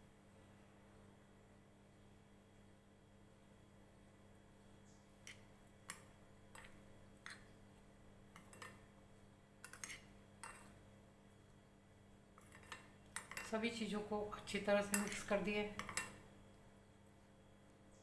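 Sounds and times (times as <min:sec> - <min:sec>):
metal spoon tapping glass bowl: 0:09.6 - 0:10.7, 0:14.9 - 0:16.1.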